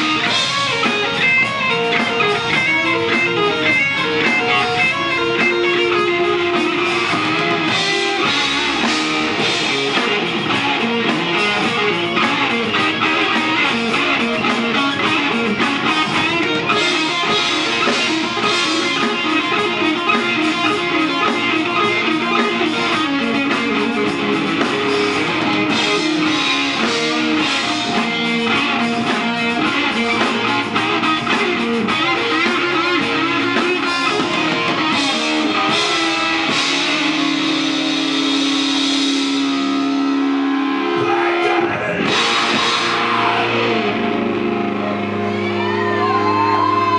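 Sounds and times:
drum kit: 0:00.0 - 0:46.9
electric guitars: 0:00.0 - 0:46.9.

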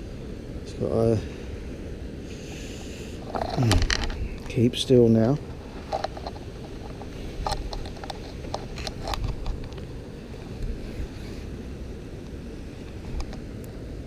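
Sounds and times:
wind rumble on microphone: 0:00.0 - 0:14.0
handling clicks and rustles: 0:03.2 - 0:11.4.

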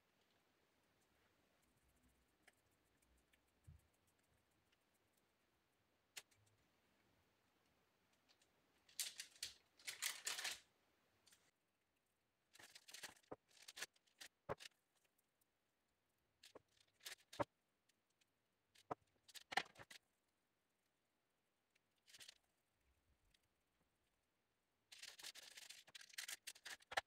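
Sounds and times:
parchment paper rustling: 0:08.8 - 0:10.7, 0:12.5 - 0:15.0, 0:16.4 - 0:17.5, 0:22.0 - 0:22.4, 0:24.9 - 0:27.0.

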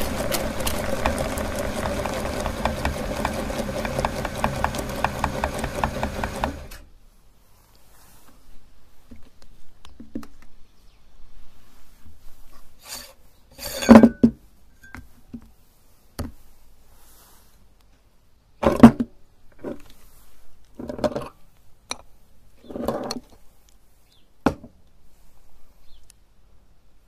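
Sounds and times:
metal grinder parts clanking: 0:00.0 - 0:06.7.

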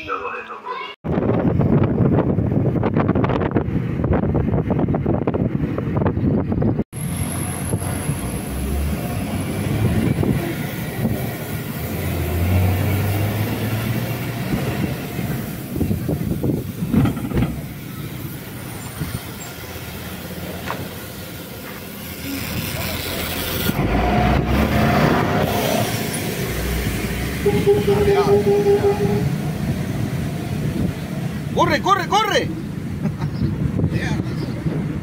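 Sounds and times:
road and traffic noise: 0:00.0 - 0:35.0
garbage truck engine humming: 0:07.0 - 0:31.6.

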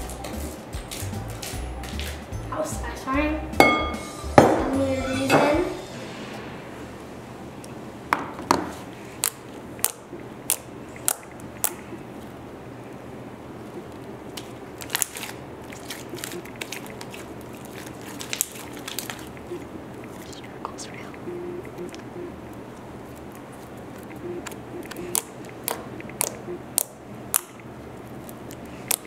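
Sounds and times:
hands squeezing slime: 0:14.3 - 0:20.4.

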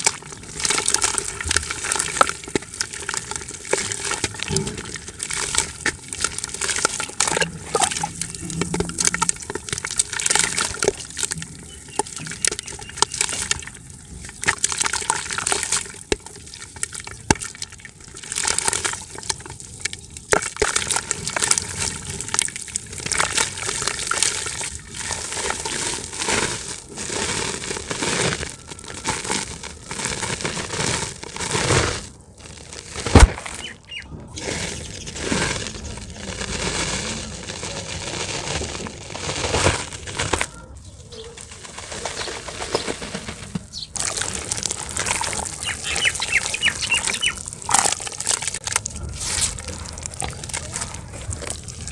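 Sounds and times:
grit pattering into bucket: 0:20.3 - 0:51.9
dirt crunching by hand: 0:25.4 - 0:51.9.

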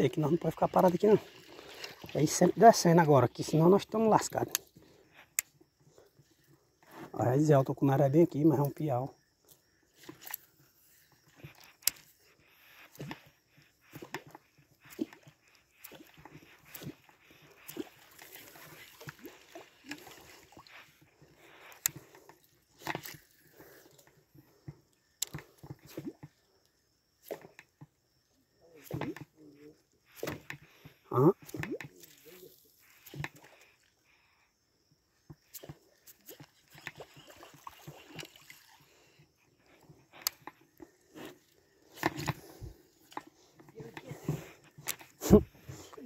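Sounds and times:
popper lure popping and splashing: 0:13.9 - 0:22.2, 0:35.4 - 0:38.8.

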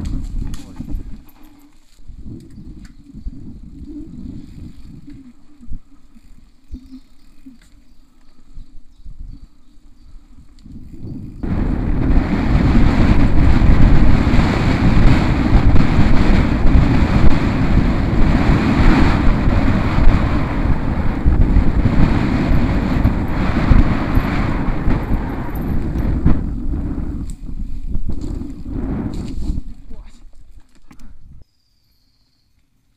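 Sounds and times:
wind rushing over microphone: 0:00.0 - 0:01.3, 0:02.0 - 0:07.5, 0:08.6 - 0:30.3
bike tyres rumbling over rough ground: 0:00.0 - 0:31.4.

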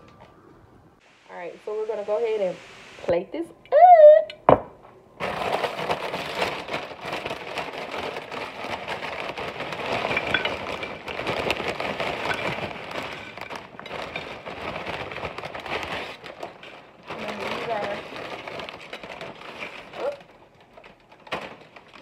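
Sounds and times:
plastic bag rustling: 0:05.2 - 0:22.0
chips tumbling onto a plate: 0:09.8 - 0:16.0.

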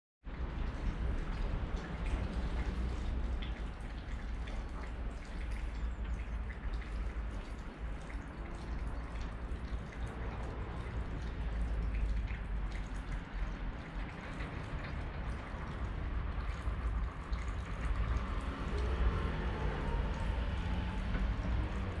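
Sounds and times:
light rain pattering: 0:00.3 - 0:22.0
wind rumbling on microphone: 0:08.0 - 0:22.0.

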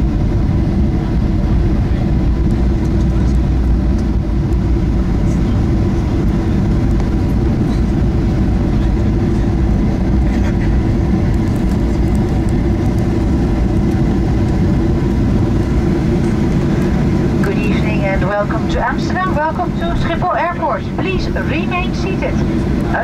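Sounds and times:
airliner cabin engine rumble: 0:00.0 - 0:23.0.

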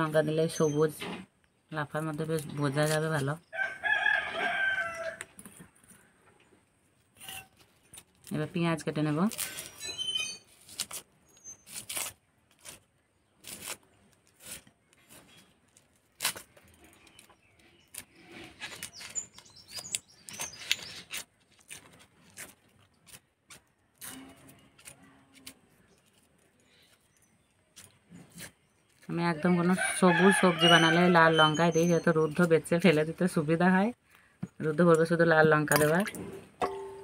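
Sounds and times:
onion skin crackling and tearing: 0:06.9 - 0:29.1.

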